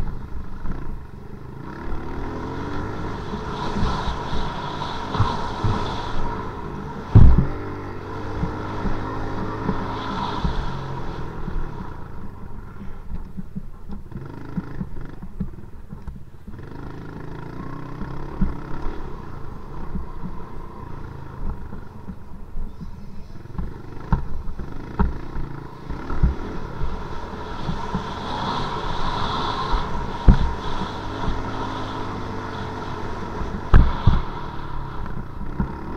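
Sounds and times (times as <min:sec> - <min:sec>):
dirt bike engine revving: 0:00.6 - 0:12.2, 0:14.1 - 0:15.2, 0:16.5 - 0:21.9, 0:23.7 - 0:35.9
wind on microphone: 0:02.1 - 0:14.0, 0:25.4 - 0:35.9.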